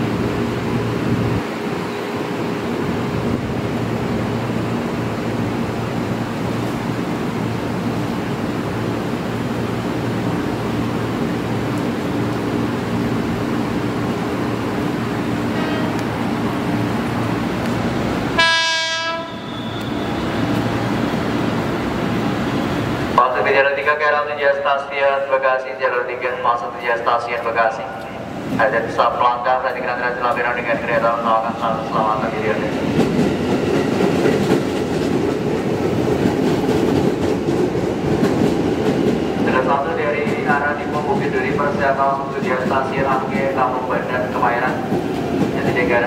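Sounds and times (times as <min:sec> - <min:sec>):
train running on rails: 0:00.0 - 0:46.0
train horn blast: 0:15.5 - 0:16.0, 0:18.4 - 0:20.2.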